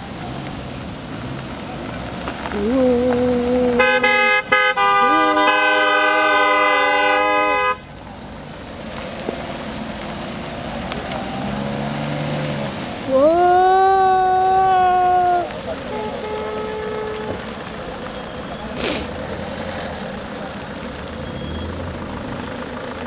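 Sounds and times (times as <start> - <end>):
passing traffic: 0.0 - 23.0
car horns honking: 3.8 - 7.9, 15.8 - 17.6.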